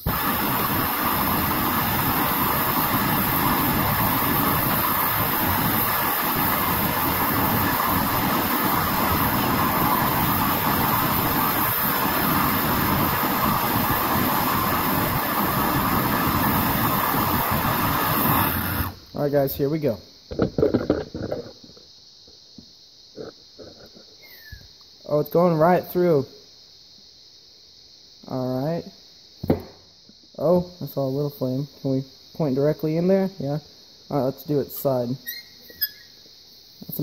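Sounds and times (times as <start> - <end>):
blowtorch flame hissing: 0.0 - 24.8.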